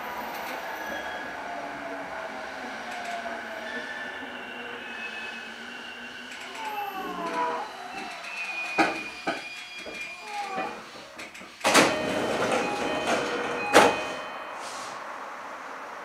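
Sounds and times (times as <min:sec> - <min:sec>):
train doors sliding open: 0:00.2 - 0:16.0
train motor whine: 0:02.8 - 0:16.0
door clunk: 0:11.7 - 0:14.2.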